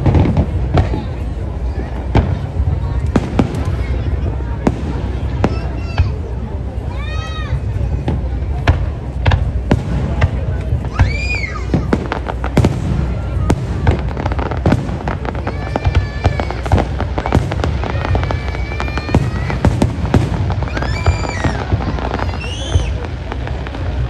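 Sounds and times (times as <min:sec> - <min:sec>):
firecracker bangs and crackles: 0:00.0 - 0:24.0
high held firework tones: 0:00.0 - 0:24.0.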